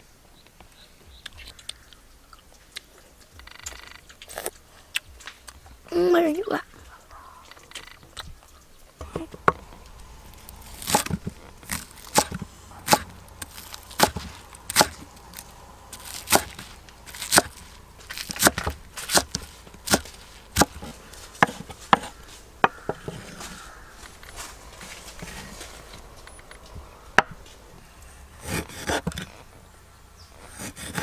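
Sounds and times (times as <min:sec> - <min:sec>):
cleaver chopping on wooden board: 0:09.0 - 0:23.2.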